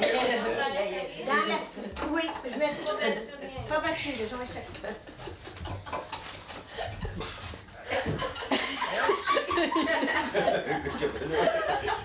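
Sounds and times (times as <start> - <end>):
people laughing: 0.0 - 0.8, 4.8 - 12.0.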